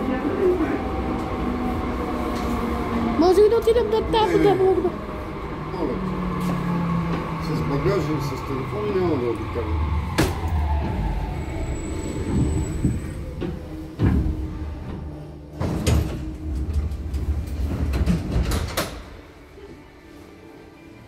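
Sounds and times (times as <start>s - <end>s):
metro train rumble: 0.0s - 21.0s
train doors sliding open: 10.0s - 19.8s.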